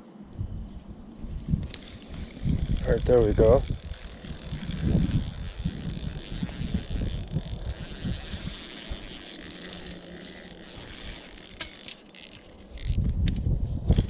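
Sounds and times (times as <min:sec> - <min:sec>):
wind buffeting microphone: 0:00.3 - 0:14.0
fishing reel whirring: 0:01.7 - 0:13.1
light reel clicks: 0:02.5 - 0:13.4.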